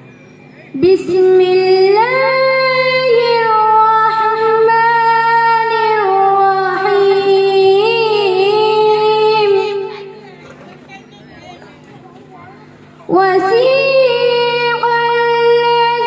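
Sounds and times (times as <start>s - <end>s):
girl chanting through loudspeakers: 0.8s - 10.2s, 13.1s - 16.0s.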